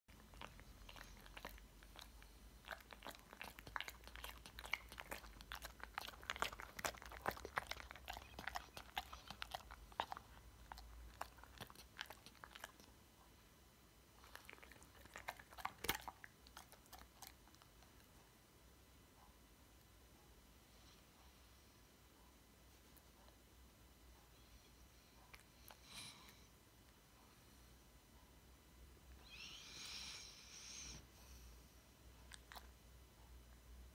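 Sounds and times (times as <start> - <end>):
dog chewing and smacking mouth: 0.1 - 12.9, 14.2 - 18.2, 32.2 - 32.8.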